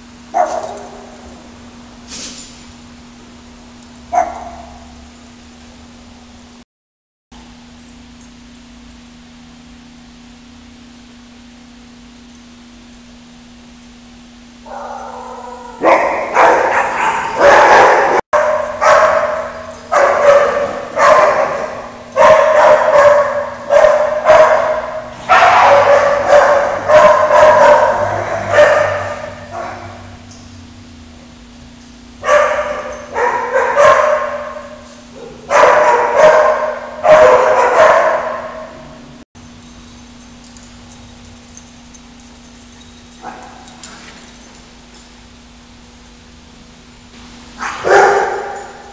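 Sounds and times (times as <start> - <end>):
dog barking in echoing room: 0.3 - 1.5, 4.1 - 5.1, 14.6 - 30.4, 32.1 - 39.1, 43.1 - 44.4, 47.6 - 48.9.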